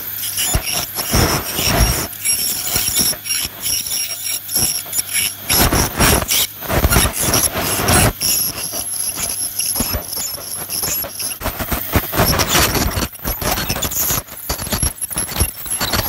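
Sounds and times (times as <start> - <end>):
dental scaler whining: 0.0 - 16.0
scaler tip scraping teeth: 0.0 - 16.0.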